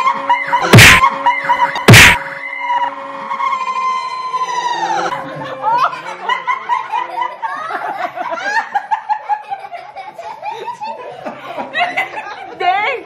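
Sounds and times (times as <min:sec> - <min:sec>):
group of people laughing: 0:05.0 - 0:13.0.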